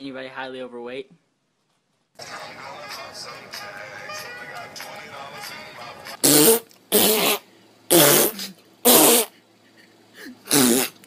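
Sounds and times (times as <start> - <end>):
person sneezing: 6.2 - 9.4, 10.2 - 11.0.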